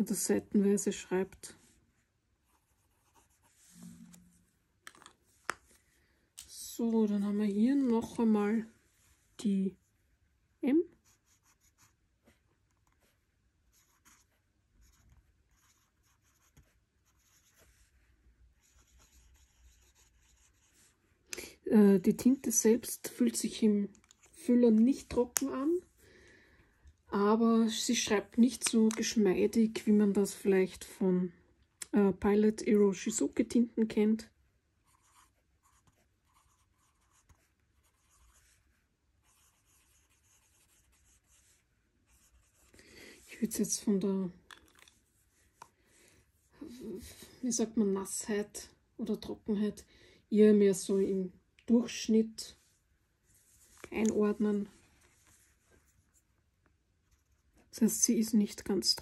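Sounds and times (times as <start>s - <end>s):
fountain pen scratching on paper: 2.4s - 3.8s, 11.0s - 12.0s, 13.7s - 17.8s, 18.6s - 21.0s, 34.8s - 38.6s, 39.2s - 42.7s.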